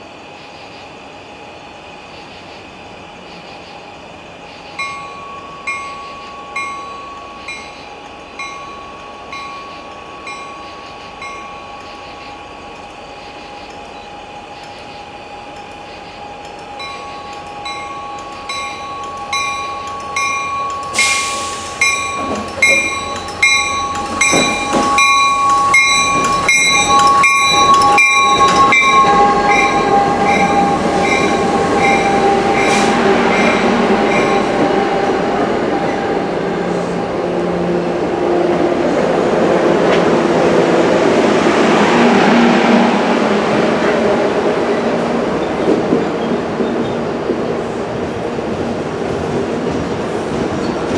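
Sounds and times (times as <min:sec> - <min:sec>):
train coaches rumbling past: 0:00.0 - 0:50.9
locomotive bell ringing: 0:04.8 - 0:14.6, 0:15.2 - 0:35.0.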